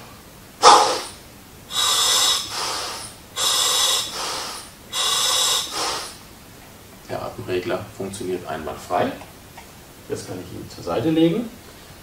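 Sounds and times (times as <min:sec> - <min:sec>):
sharp blast of air: 0:00.0 - 0:06.2
soft exhalation: 0:00.6 - 0:06.2
hissing inhalation through regulator: 0:00.6 - 0:06.3.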